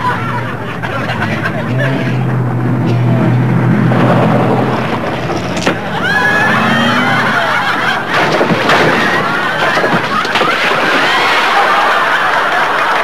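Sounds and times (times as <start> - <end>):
car engine running: 0.0 - 10.3
car rattling and bumping: 0.0 - 12.2
high squeals: 2.9 - 8.0.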